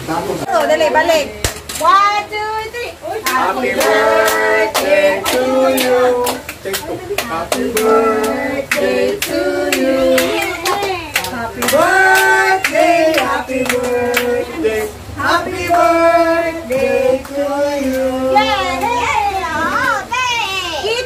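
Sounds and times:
adults and children singing: 2.9s - 20.1s
hands clapping: 3.3s - 14.3s.

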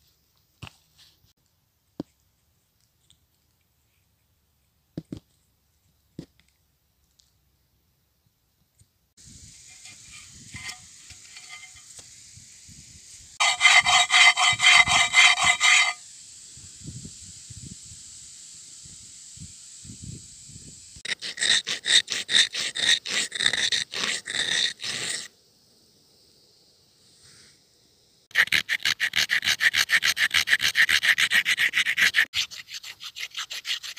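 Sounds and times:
faint high hiss: 6.8s - 13.5s, 14.7s - 21.0s, 25.3s - 28.3s
wooden shaft grinding on stone: 9.7s - 12.0s, 13.4s - 16.0s.

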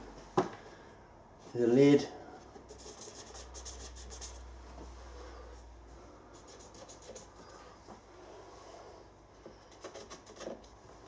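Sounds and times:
marker pen scratching on plastic: 2.6s - 4.4s, 6.4s - 7.6s, 9.6s - 10.8s.

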